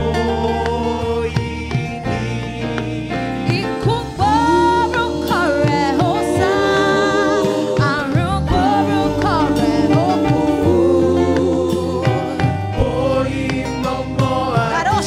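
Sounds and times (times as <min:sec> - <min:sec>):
backing voices singing: 0:00.0 - 0:15.0
woman singing into a microphone: 0:03.4 - 0:12.4, 0:14.6 - 0:15.0.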